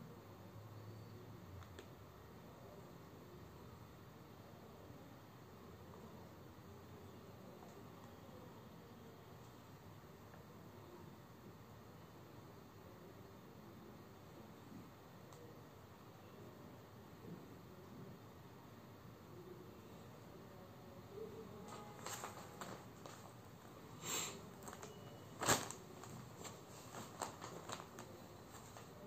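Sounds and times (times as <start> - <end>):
steady hiss: 21.1 - 29.0
plastic wrapping rustling: 21.6 - 29.0
clothing swishing: 24.6 - 28.9.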